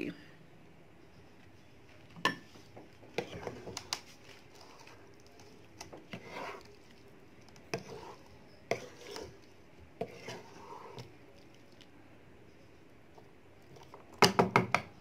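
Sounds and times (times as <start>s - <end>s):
wooden spatula scraping a wok: 2.5s - 7.0s, 7.6s - 11.1s.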